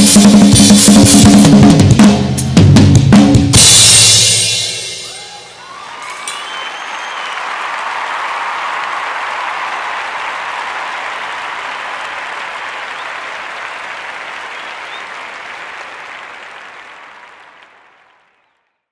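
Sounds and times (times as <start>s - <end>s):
audience applause: 5.1s - 18.8s.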